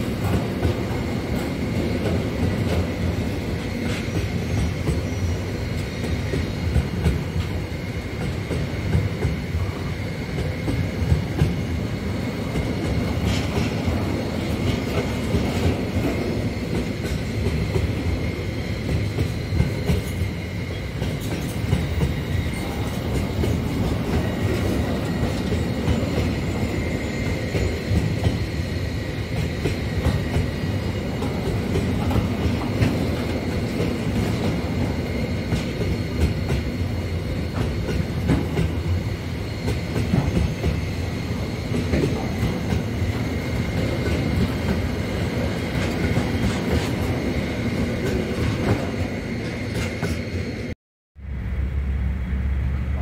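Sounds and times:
freight train rumbling past: 0:00.0 - 0:53.0
high wheel squeal: 0:04.0 - 0:06.6, 0:24.1 - 0:29.0.

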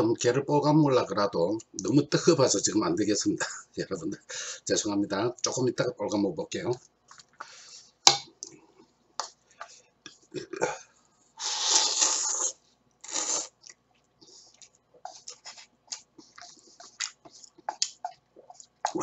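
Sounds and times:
man slurping noodles: 0:11.4 - 0:13.6
mouth clicks and smacks: 0:11.8 - 0:19.0.

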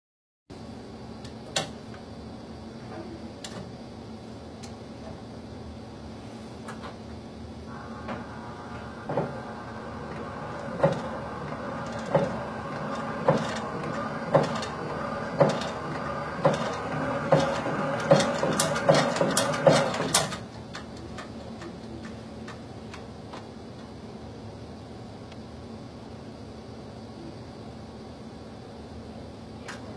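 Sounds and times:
shake table motor hum: 0:07.7 - 0:23.1.

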